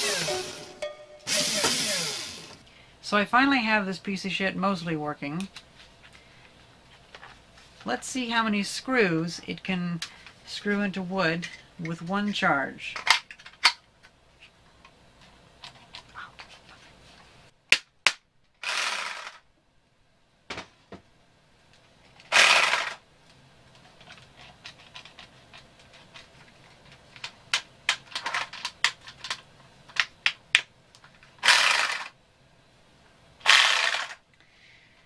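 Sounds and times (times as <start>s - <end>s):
power drill motor bursts: 0.0s - 0.7s, 1.3s - 2.6s, 22.3s - 23.0s, 33.4s - 34.2s
clicks and knocks of handling: 23.2s - 31.3s.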